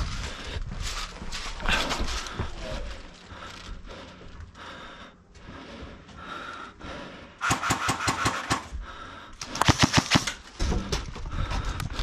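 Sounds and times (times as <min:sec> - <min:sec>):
airsoft guns firing: 0:07.4 - 0:08.7, 0:09.5 - 0:10.4.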